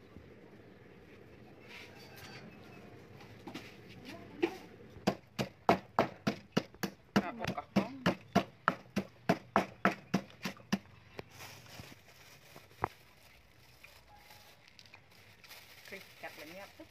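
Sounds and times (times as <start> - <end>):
pestle pounding in stone mortar: 5.0 - 10.9.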